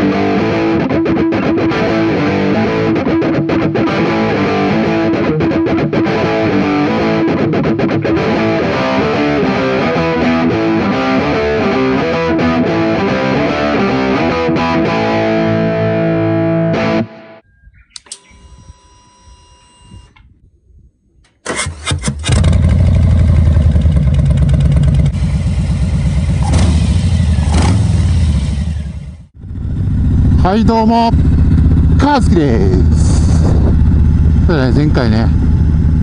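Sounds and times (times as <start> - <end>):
rock music with distorted guitar: 0.0 - 17.4.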